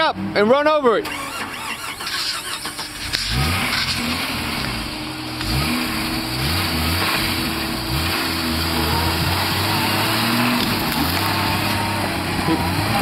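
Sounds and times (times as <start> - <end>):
car engine revving: 1.0 - 13.0
tires churning water: 2.6 - 13.0.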